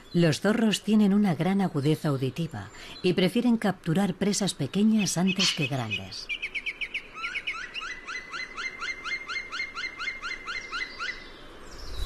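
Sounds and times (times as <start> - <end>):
small bird calling: 4.7 - 12.0.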